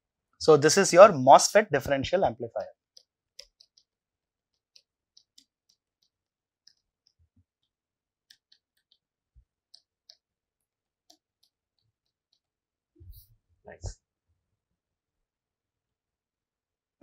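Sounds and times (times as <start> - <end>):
stylus tapping on writing tablet: 2.8 - 10.3, 11.0 - 12.6.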